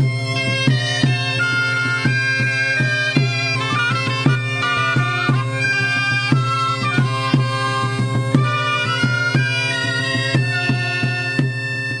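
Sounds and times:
percussion striking: 0:00.0 - 0:12.0
reedy wind instrument melody: 0:00.0 - 0:12.0.

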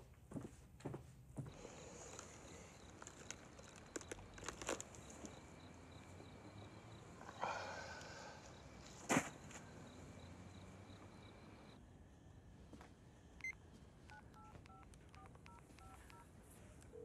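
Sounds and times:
two-tone dialling beeps: 0:13.4 - 0:16.2.

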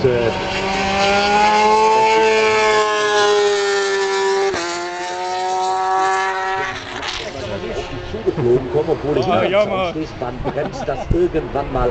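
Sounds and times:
racing motorcycle engine whine: 0:00.0 - 0:08.2.

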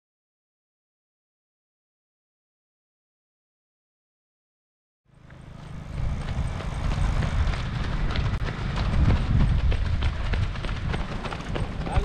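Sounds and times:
low vehicle rumble: 0:05.1 - 0:12.0
runners' footfalls on road: 0:05.1 - 0:12.0.

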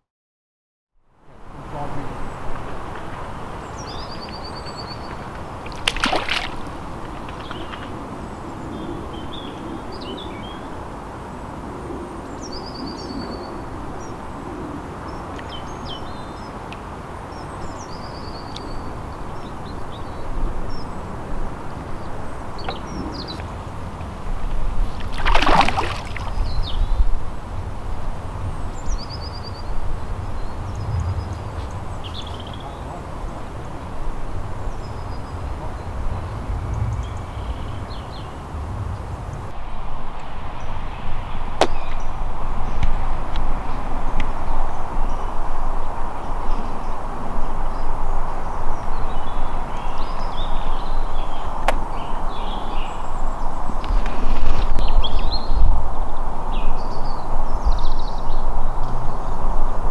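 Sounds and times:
outdoor ambience: 0:01.0 - 0:59.9
small birds chirping: 0:01.7 - 0:11.5, 0:12.1 - 0:39.5, 0:44.0 - 0:55.7
splash in water: 0:05.0 - 0:08.0, 0:24.8 - 0:26.7.

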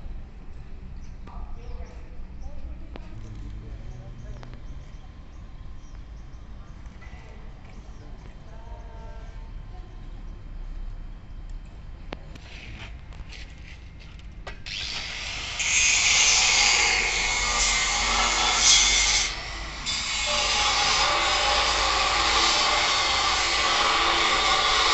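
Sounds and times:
angle grinder grinding metal: 0:14.7 - 0:24.9.

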